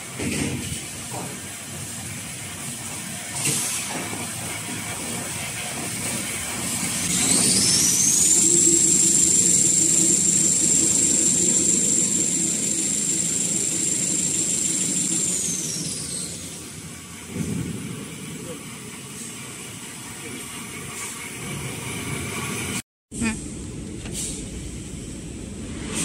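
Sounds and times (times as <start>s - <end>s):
motor high whine: 7.1s - 17.0s
machinery low hum: 7.2s - 18.3s.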